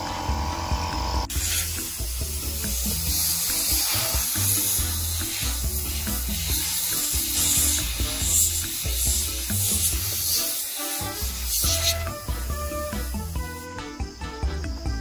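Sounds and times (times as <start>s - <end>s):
background music with bass line: 0.0s - 15.0s
steady hiss: 1.3s - 14.6s.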